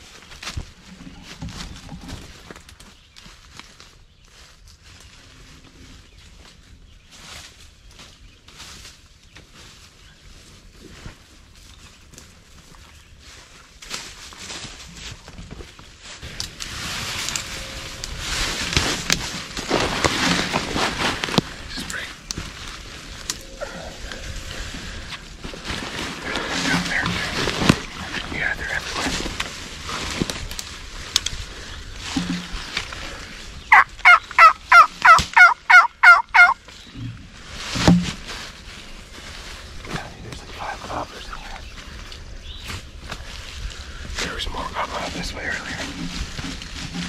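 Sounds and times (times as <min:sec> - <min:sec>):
rustling of brush and clothing: 0:00.0 - 0:47.0
wild turkey yelps: 0:33.7 - 0:36.6.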